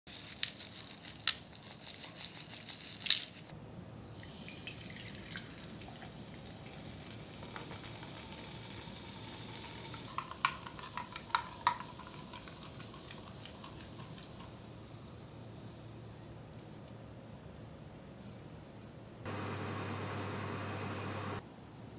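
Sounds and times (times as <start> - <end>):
sugar sprinkles rattling from tube: 0.1 - 3.5
soda pouring and fizzing: 4.0 - 16.0.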